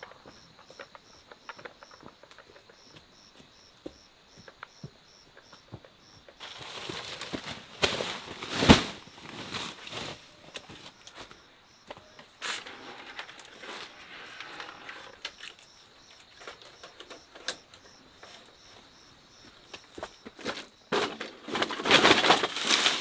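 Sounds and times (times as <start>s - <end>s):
faint footsteps: 0.0s - 20.8s
insects chirping: 0.0s - 23.0s
plastic sacks rustling: 6.4s - 11.1s, 20.4s - 23.0s.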